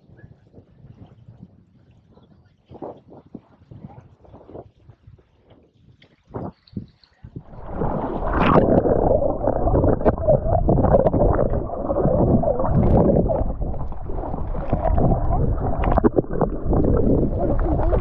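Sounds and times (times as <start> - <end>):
muffled water sloshing: 7.4 - 18.0.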